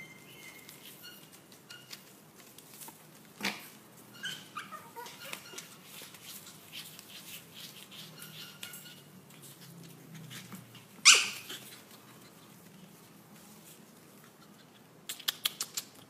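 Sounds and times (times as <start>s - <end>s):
puppies yipping: 4.1s - 5.8s, 7.8s - 9.1s, 10.4s - 12.4s
sharp puppy yap: 11.0s - 11.6s.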